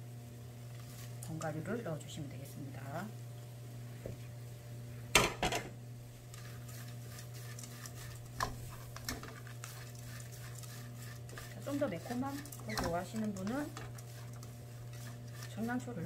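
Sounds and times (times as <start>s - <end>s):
steady low hum: 0.0s - 16.0s
wooden spatula stirring in frying pan: 0.6s - 1.7s, 6.0s - 16.0s.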